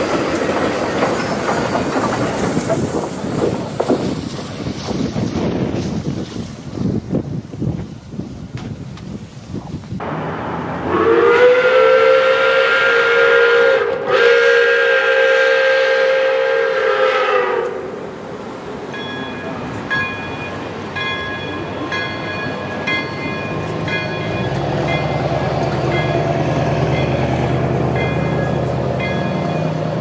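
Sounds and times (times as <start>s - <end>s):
steam locomotive whistle: 10.8s - 18.0s
bell ringing: 18.9s - 25.3s, 28.0s - 29.8s.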